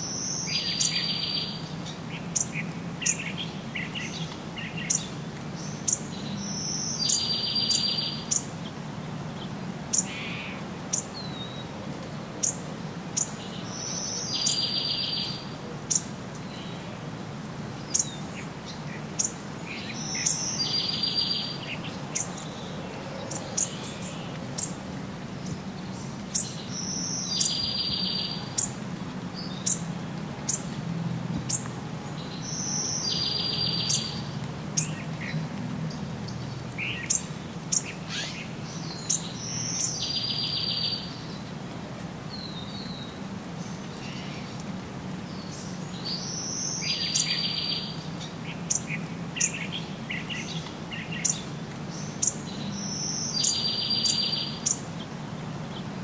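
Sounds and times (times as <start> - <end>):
bird song with buzzy trill: 19.2 - 21.6, 52.2 - 54.8.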